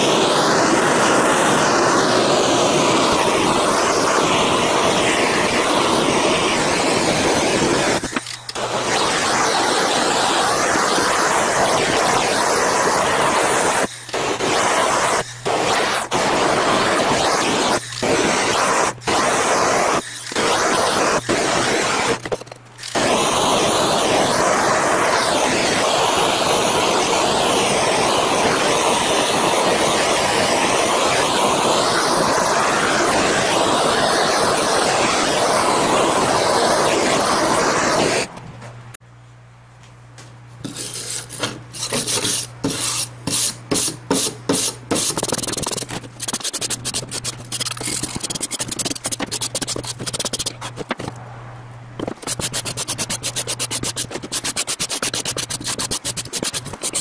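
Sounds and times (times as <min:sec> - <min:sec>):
saw blade grinding bursts: 0:40.6 - 0:51.0, 0:52.1 - 0:57.0
rubbing and scraping: 0:40.6 - 0:51.2, 0:52.0 - 0:57.0.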